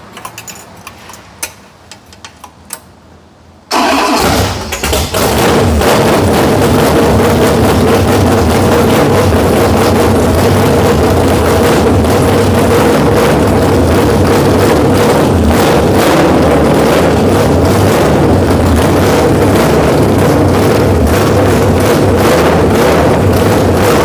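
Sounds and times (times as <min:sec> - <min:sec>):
vee eight engine running loud: 0:03.8 - 0:24.0.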